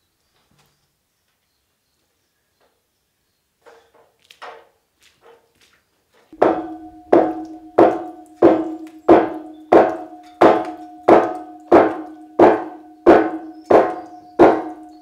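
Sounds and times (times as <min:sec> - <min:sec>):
background music with percussive beat: 0:06.4 - 0:15.0.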